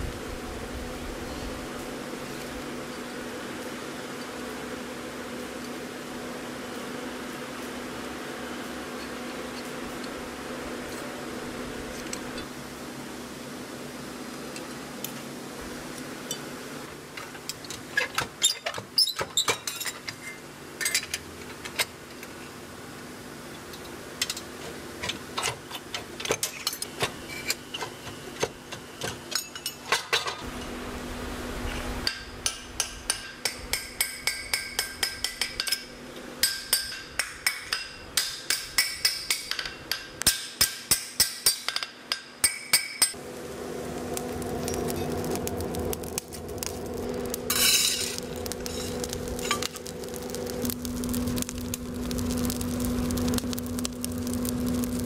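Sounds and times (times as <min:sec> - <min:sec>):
hammer striking steel on anvil: 0:32.0 - 0:43.2.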